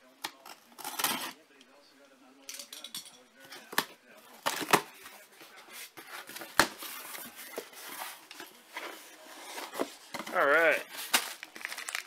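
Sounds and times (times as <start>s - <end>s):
cardboard and plastic rustling: 3.5s - 12.0s.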